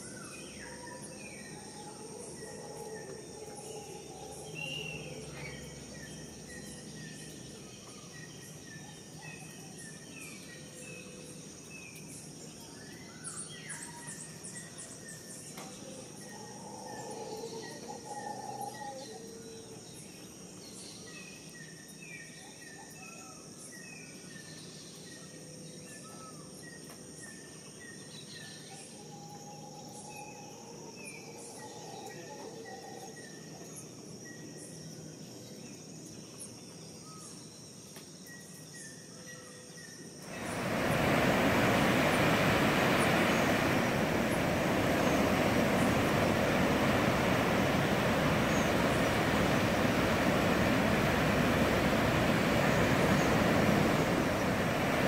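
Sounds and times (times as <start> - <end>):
birds chirping: 40.2 - 55.0
low bird calls: 40.3 - 55.0.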